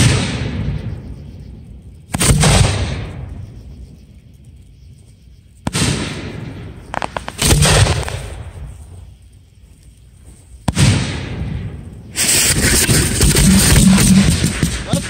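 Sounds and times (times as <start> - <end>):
sharp crack: 0.0 - 1.0, 2.0 - 3.5, 5.6 - 9.0, 10.6 - 15.0
fireworks booming: 0.0 - 4.0, 5.6 - 9.1, 10.5 - 15.0
crackling pops: 0.0 - 15.0.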